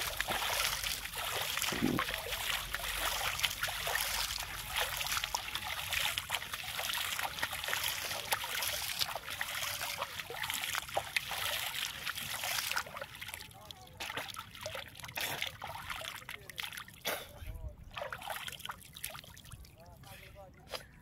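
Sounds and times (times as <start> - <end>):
hand splashing water: 0.0 - 13.0
drips falling on water: 0.0 - 16.9.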